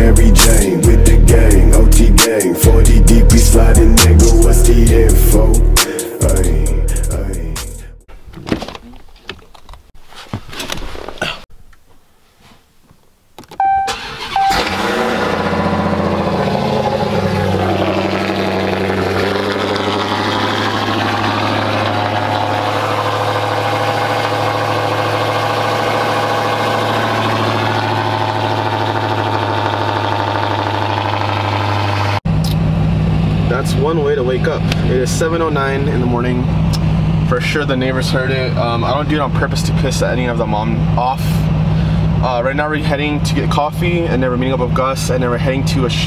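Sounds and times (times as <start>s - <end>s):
car engine starting and idling: 0.0s - 7.8s, 13.4s - 46.0s
brief high tone: 13.6s - 14.8s.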